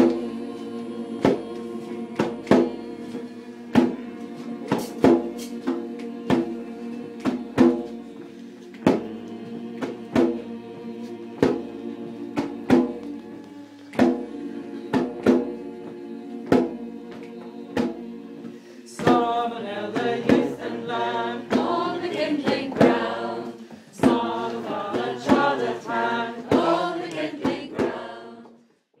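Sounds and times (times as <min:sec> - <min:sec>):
held drone: 0:00.0 - 0:19.0
slow steady drum beat: 0:00.0 - 0:28.1
voices singing a chant: 0:00.0 - 0:28.6.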